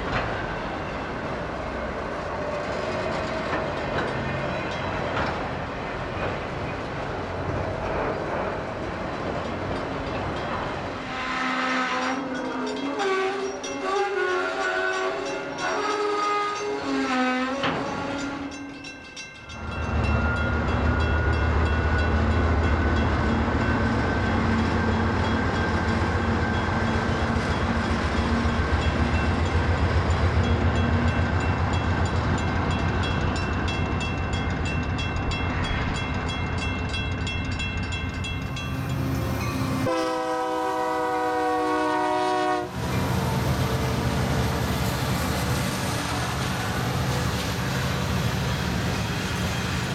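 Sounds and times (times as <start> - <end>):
diesel locomotive engine rumbling: 0.0 - 49.9
train wheels rolling on rails: 0.0 - 49.9
locomotive air horn: 11.0 - 18.6, 39.7 - 46.9.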